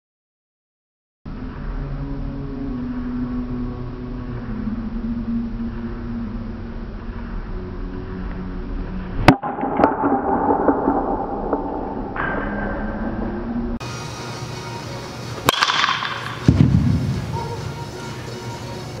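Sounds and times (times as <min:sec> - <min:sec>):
low hum: 0:01.3 - 0:19.0
bat cracking a ball: 0:15.4 - 0:17.3.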